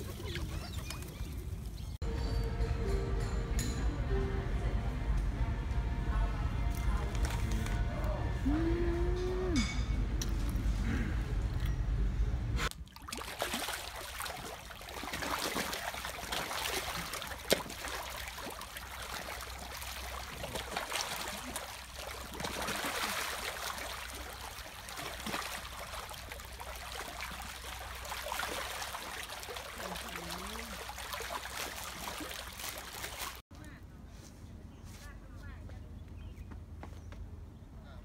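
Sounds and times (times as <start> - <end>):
fish thrashing and splashing: 12.8 - 33.4.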